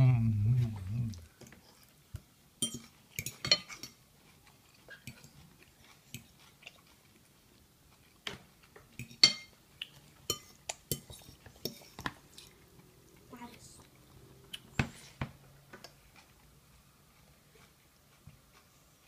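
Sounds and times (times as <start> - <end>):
child chewing: 0.0 - 19.0
forks clinking against a bowl: 2.6 - 4.0, 9.0 - 9.6, 10.3 - 11.9.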